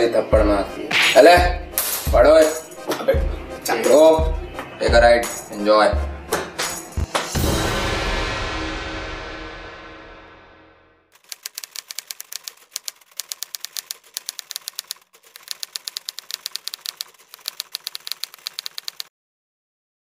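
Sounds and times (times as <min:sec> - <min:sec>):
typewriter key strikes: 0:11.2 - 0:19.1.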